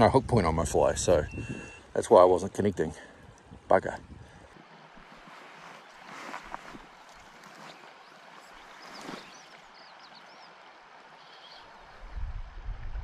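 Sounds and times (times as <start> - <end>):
wind buffeting microphone: 0.0 - 1.9, 12.0 - 13.0
river water rushing: 4.5 - 12.1.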